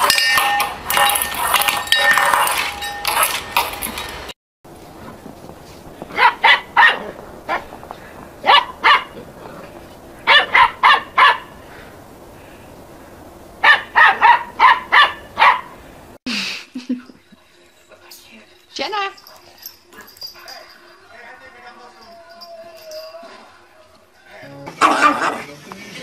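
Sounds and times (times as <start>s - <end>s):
small dog barking: 6.1s - 7.8s, 8.4s - 9.2s, 10.2s - 11.5s, 13.6s - 15.8s.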